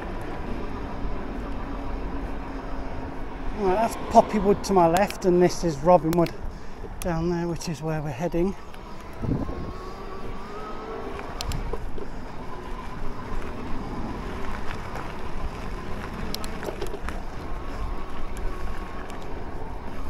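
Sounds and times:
wind buffeting microphone: 0.0s - 20.0s
sharp clicks: 4.9s - 5.4s, 6.0s - 7.2s, 11.1s - 11.9s, 16.2s - 17.1s.

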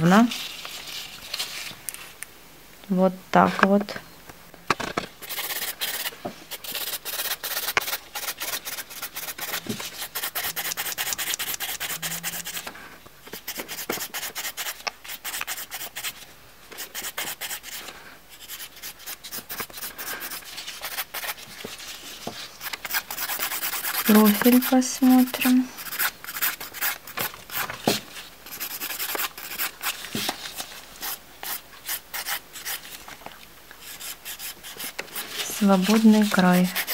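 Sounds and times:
nail file rasping: 5.2s - 12.6s, 22.6s - 24.8s, 25.8s - 27.6s, 28.5s - 30.0s, 33.8s - 36.9s.

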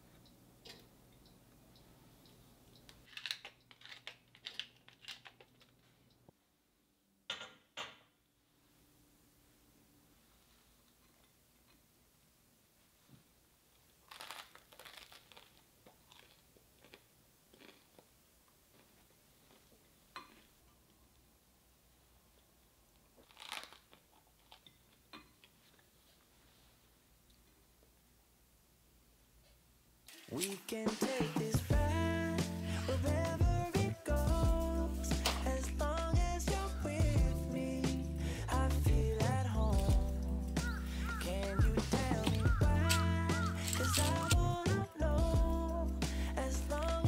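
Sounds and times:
toast crunch: 2.8s - 6.2s, 13.8s - 21.2s, 22.4s - 25.9s, 37.8s - 45.0s
pepper mill grinding: 3.0s - 5.7s, 40.0s - 44.7s.

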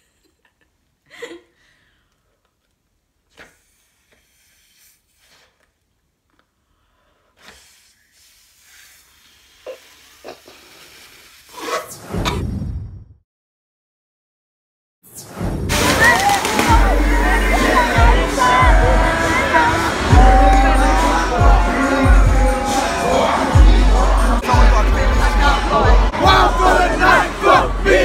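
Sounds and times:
woman laughing: 0.0s - 1.6s
woman blowing breathy puffs: 3.3s - 5.8s, 6.6s - 11.8s.

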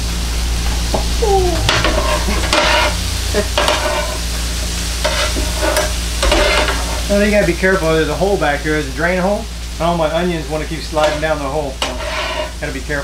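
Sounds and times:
steady sizzle of frying: 0.0s - 13.0s
metal spatulas scraping griddle: 1.7s - 4.3s, 5.0s - 7.1s, 11.0s - 12.8s.

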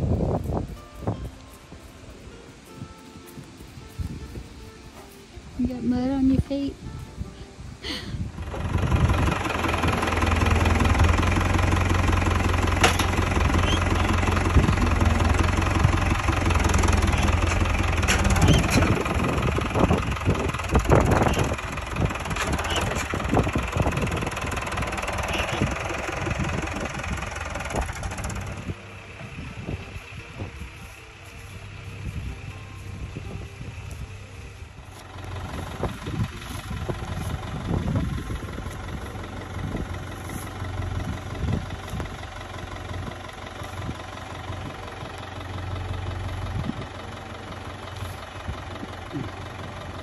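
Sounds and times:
tractor diesel engine idling: 0.0s - 50.0s
knocks and clanks: 10.3s - 28.7s.

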